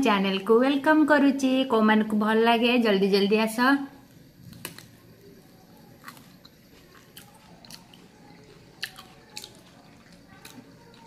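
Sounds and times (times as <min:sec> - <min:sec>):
person chewing crisp fruit: 0:04.1 - 0:11.0.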